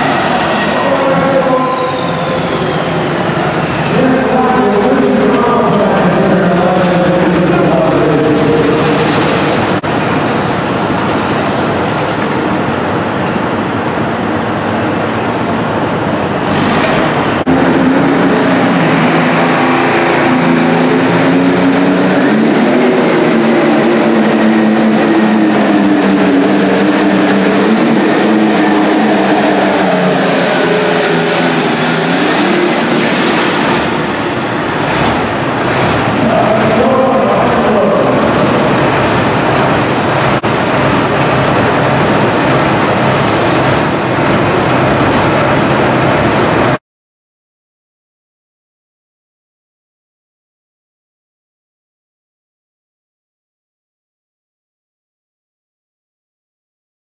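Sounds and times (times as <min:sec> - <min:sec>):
tractor engines running hard: 0:00.0 - 0:46.8
thin high whistle: 0:00.2 - 0:03.4.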